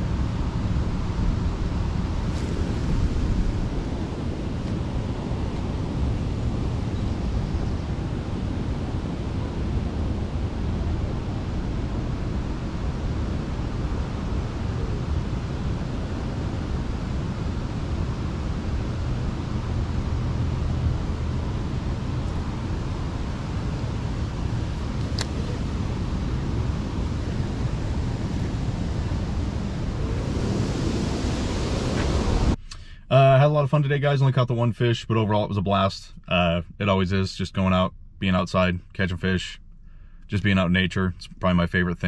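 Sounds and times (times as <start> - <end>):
wind buffeting microphone: 0.0 - 32.6.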